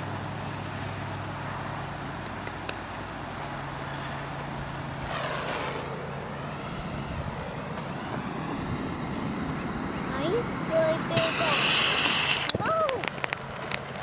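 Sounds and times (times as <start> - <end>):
vehicle passing: 3.8 - 12.3.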